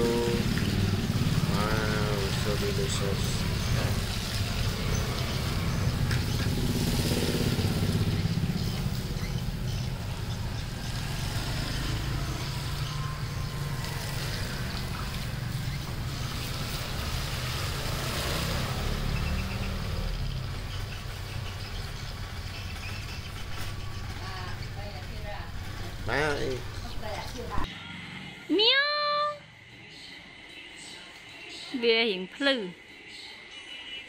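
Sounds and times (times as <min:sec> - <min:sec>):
engine running: 0:00.0 - 0:27.7.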